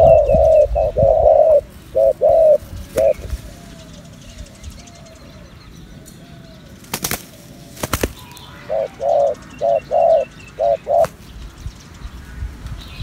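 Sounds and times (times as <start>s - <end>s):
doves cooing: 0.0s - 6.8s, 7.4s - 11.2s
wing flaps: 6.8s - 8.4s.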